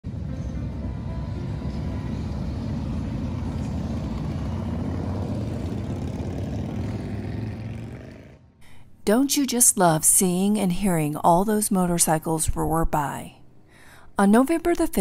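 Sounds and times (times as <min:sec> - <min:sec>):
motorcycles roaring by: 0:00.4 - 0:08.6.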